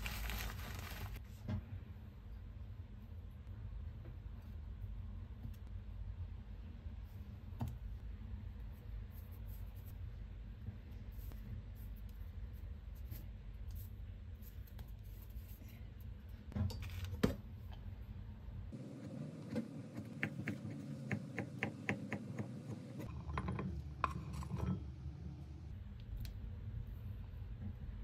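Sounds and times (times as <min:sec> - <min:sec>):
knife chopping on wooden board: 0:19.5 - 0:23.0.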